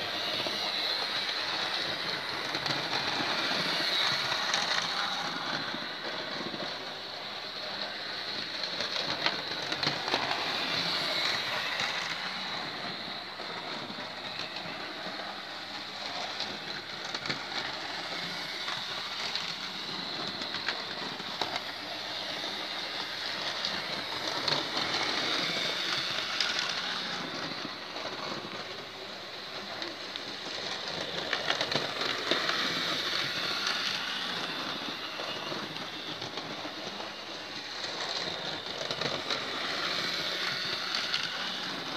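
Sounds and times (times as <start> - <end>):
model train motor whirring: 0.0 - 41.9
wheels clicking on rails: 29.6 - 41.9.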